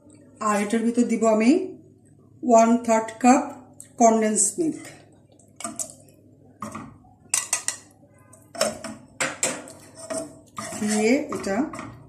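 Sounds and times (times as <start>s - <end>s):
utensils knocking on saucepan: 6.6s - 7.9s, 8.5s - 12.0s.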